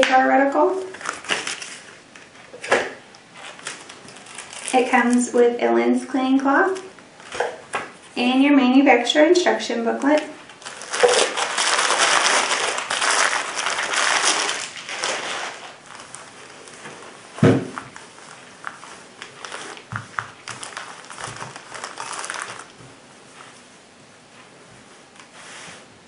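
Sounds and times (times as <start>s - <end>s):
plastic sleeve crinkling: 0.1s - 5.5s, 10.0s - 23.6s
bubble wrap crinkling: 0.2s - 5.5s, 6.3s - 8.3s, 10.0s - 23.6s
thump: 17.4s - 17.8s.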